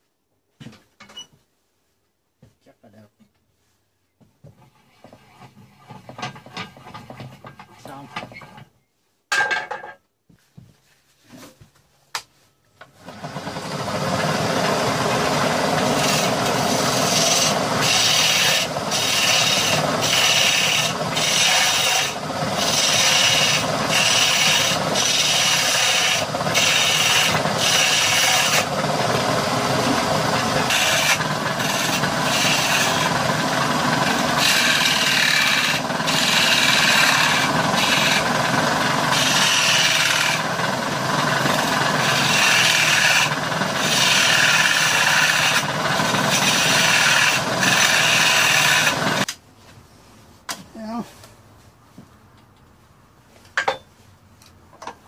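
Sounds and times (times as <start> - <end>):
chisel scraping spinning wood: 4.6 - 8.7, 13.0 - 49.3.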